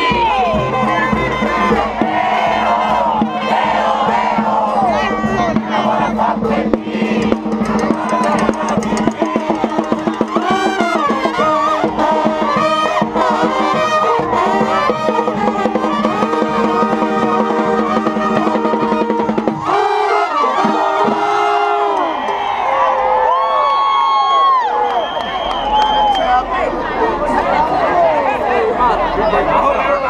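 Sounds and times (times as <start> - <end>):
brass band playing: 0.0 - 22.2
drums: 0.0 - 22.8
crowd voices: 0.0 - 30.0.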